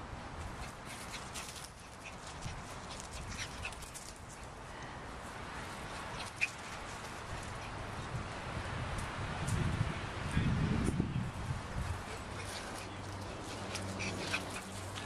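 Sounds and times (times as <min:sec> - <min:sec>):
dogs scuffling and rustling: 0:00.4 - 0:04.6, 0:05.6 - 0:08.0, 0:11.8 - 0:15.0.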